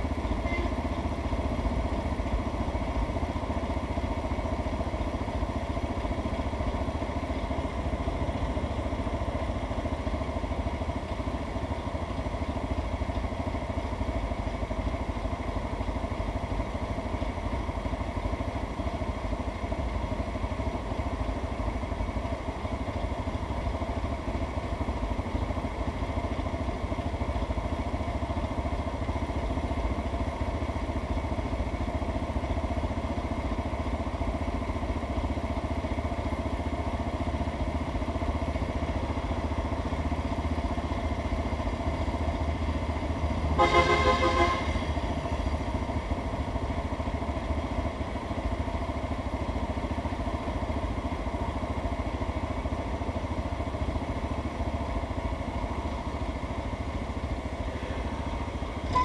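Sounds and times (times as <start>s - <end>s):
vehicle engine idling: 0.0s - 59.0s
car horn: 0.4s - 0.8s, 43.6s - 45.0s.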